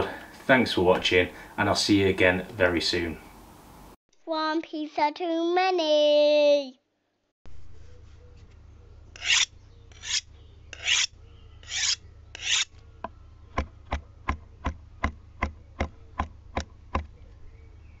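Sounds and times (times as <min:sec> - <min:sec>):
short rasping scrapes: 0:09.2 - 0:12.7.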